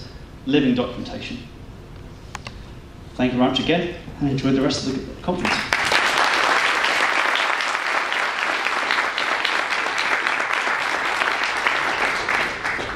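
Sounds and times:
audience applauding: 5.4s - 12.9s.

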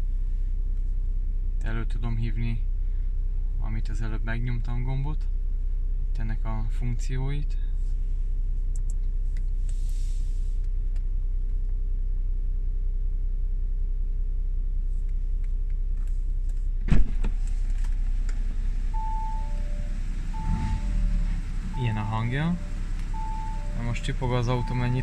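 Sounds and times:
car engine low rumble: 0.0s - 25.0s
sharp thump: 16.8s - 17.4s
two-tone warning chime: 19.0s - 25.0s.

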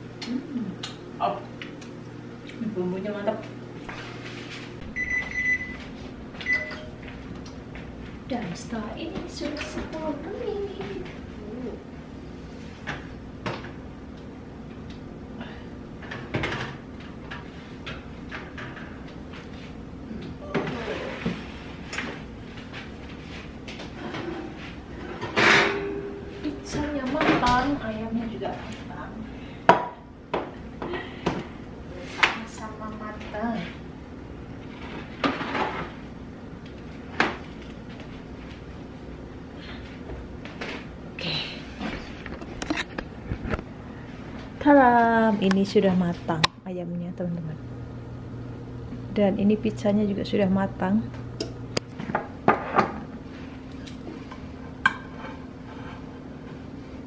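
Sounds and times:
steady low hum: 0.0s - 57.0s
metal baking sheet clanks: 25.3s - 26.4s.

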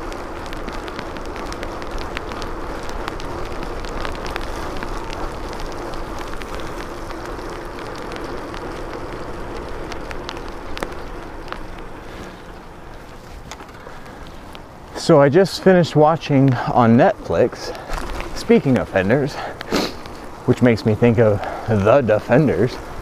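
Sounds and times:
sharp ticks: 0.0s - 15.3s
bicycle tyres hissing on wet asphalt: 0.0s - 23.0s.

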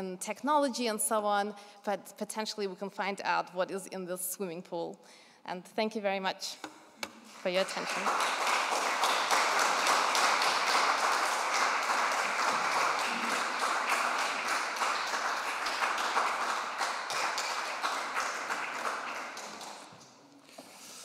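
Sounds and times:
audience applauding: 7.3s - 20.0s.

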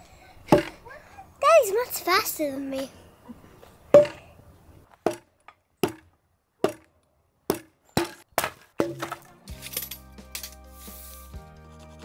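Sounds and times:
hammer knocking on wooden beam: 0.5s - 0.8s, 4.0s - 4.2s, 5.0s - 5.2s, 6.6s - 6.9s.

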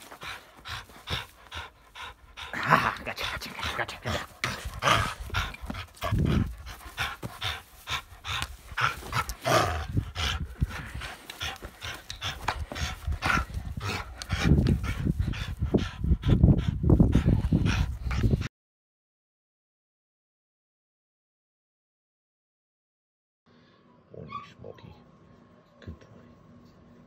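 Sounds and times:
dog panting and puffing: 0.0s - 18.5s.

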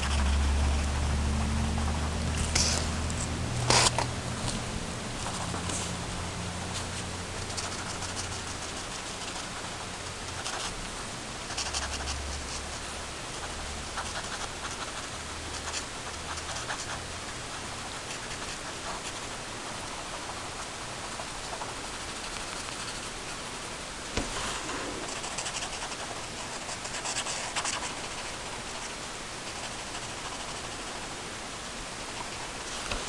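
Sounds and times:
pen scratching on paper: 0.0s - 3.0s, 5.2s - 5.9s, 6.8s - 10.8s, 11.5s - 12.8s, 13.4s - 19.3s, 24.2s - 28.9s, 29.5s - 31.0s
low hum: 0.0s - 7.5s
steady hiss: 0.0s - 33.0s.

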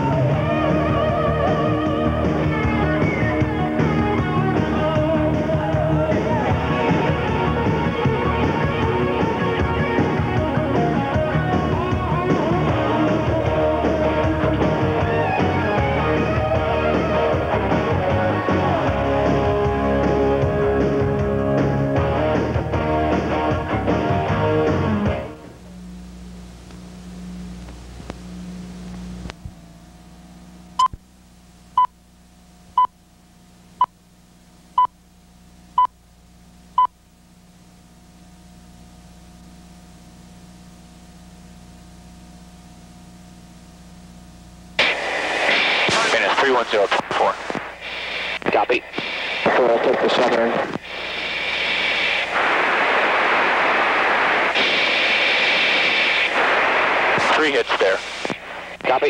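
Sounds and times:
low hum with tape hiss: 0.0s - 59.0s
radio intercom hiss: 44.8s - 59.0s.

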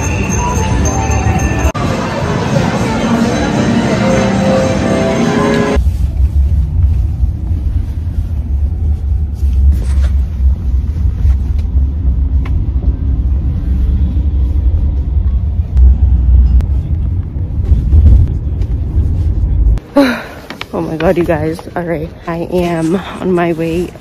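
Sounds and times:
low road rumble in car cabin: 5.8s - 19.8s.

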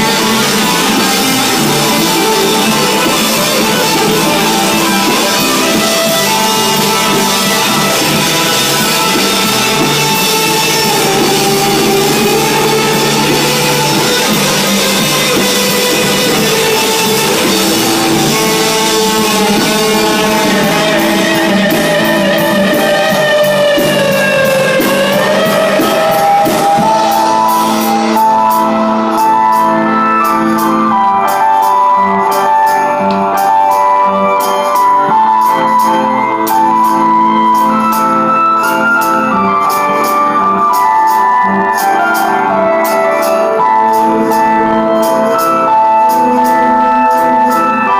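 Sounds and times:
fast pulsing beat: 0.0s - 30.9s
distorted electric guitar: 0.0s - 47.9s
live rock band playing: 0.0s - 47.9s.

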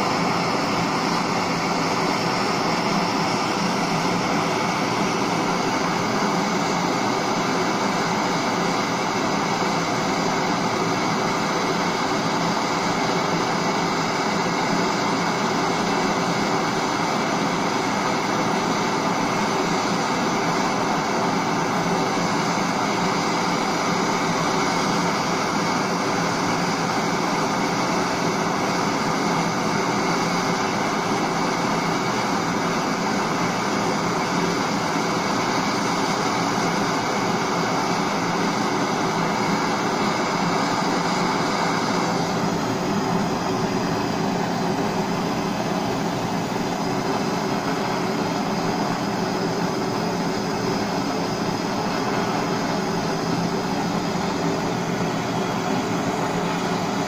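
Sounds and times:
blowtorch flame roaring: 0.0s - 57.0s.

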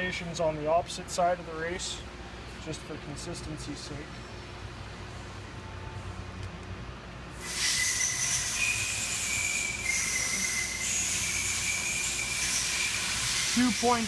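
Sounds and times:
air hissing with high whistle: 7.4s - 14.0s.

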